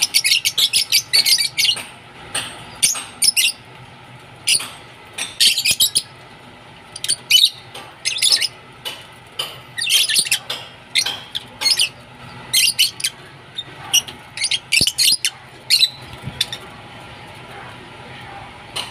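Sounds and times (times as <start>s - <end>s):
lovebirds chirping: 4.4s - 6.1s, 6.9s - 8.6s, 9.8s - 17.4s.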